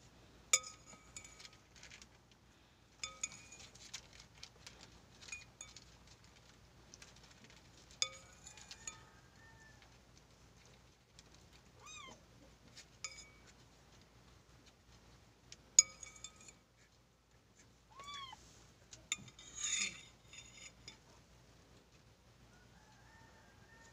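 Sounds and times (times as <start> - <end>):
spoon clinking on ceramic bowl: 0.6 - 1.5, 3.0 - 3.7, 8.0 - 9.1, 13.1 - 13.5, 15.8 - 16.6, 19.1 - 21.0
cat meowing: 11.8 - 12.2, 17.9 - 18.4.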